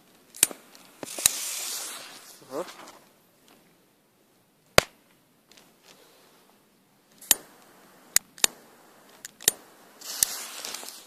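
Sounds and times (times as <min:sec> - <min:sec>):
lighter clicks: 0:07.2 - 0:07.5, 0:08.1 - 0:08.6, 0:09.2 - 0:10.4.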